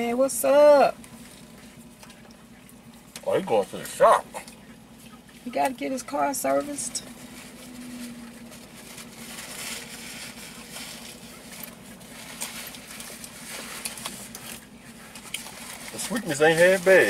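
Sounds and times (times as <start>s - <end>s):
car cabin hum: 0.0s - 17.0s
rustles and clicks from eating: 6.4s - 17.0s.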